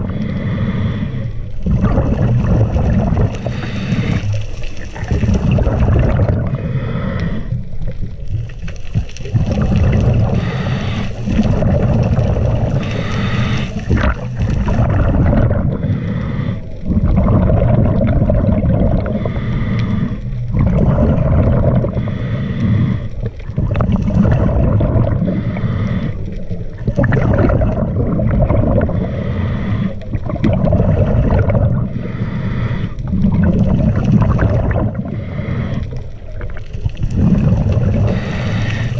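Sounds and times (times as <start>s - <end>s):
exhaled bubbles rushing: 0.0s - 0.3s, 1.5s - 32.2s, 32.9s - 38.9s
hissing regulator inhale: 0.0s - 1.9s, 3.3s - 4.8s, 6.5s - 7.8s, 10.0s - 14.8s, 15.6s - 16.9s, 19.0s - 20.5s, 21.6s - 23.5s, 25.0s - 26.8s, 28.8s - 33.2s, 34.9s - 36.4s, 37.2s - 38.9s.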